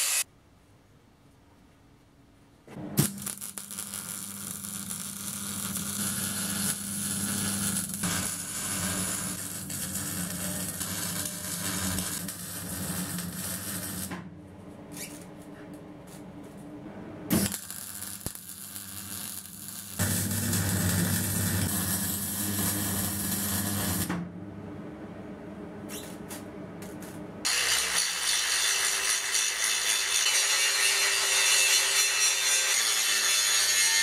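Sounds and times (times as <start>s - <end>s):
arc welding crackling hiss: 0.0s - 0.2s, 3.0s - 14.1s, 17.4s - 24.1s
low hum: 20.0s - 27.5s.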